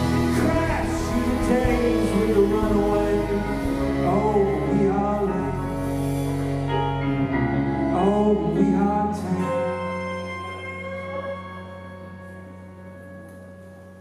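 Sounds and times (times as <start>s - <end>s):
drums: 0.0s - 9.6s
bass: 0.0s - 14.0s
electric keyboard chords: 0.0s - 14.0s
steel guitar: 0.0s - 14.0s.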